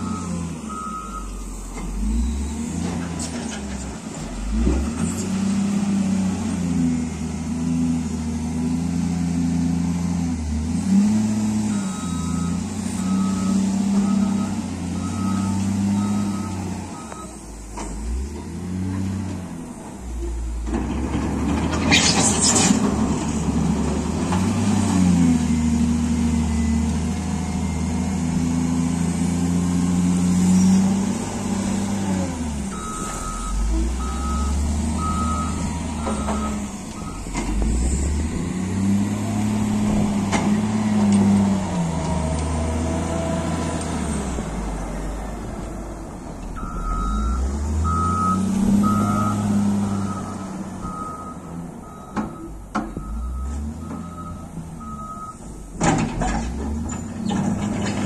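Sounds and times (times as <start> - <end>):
reversing alarm beeps: 0.0 - 1.4, 2.0 - 2.6, 11.7 - 17.4, 32.7 - 37.3, 46.6 - 55.4
diesel engine revving: 0.0 - 58.0.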